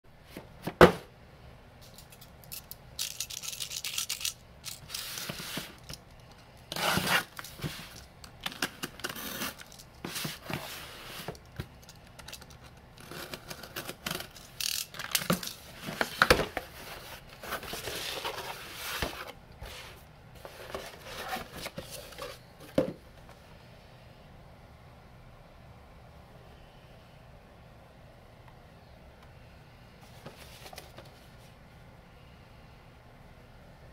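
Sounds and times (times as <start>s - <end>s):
cardboard scraping and tearing: 6.7s - 7.9s, 8.9s - 11.4s.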